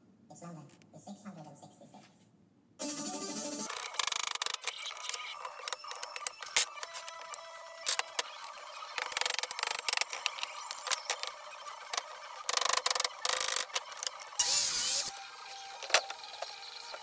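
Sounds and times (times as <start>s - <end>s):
nail squeak: 3.7s - 17.0s.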